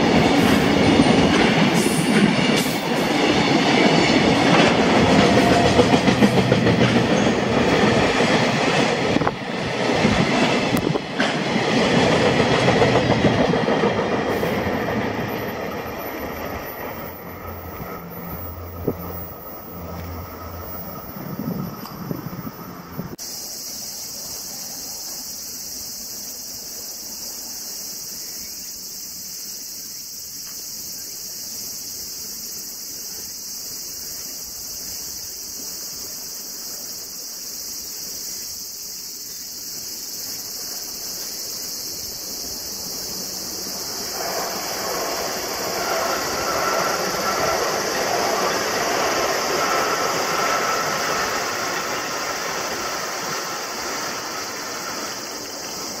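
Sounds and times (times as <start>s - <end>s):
train rail rumble: 0.0s - 28.2s, 31.8s - 56.0s
insects buzzing: 0.0s - 56.0s.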